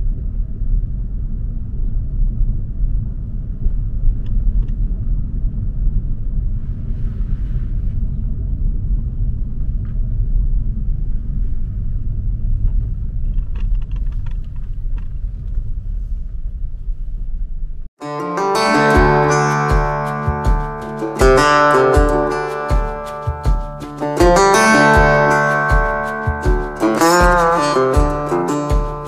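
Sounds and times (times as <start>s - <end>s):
strummed acoustic guitar music: 18.0s - 29.0s.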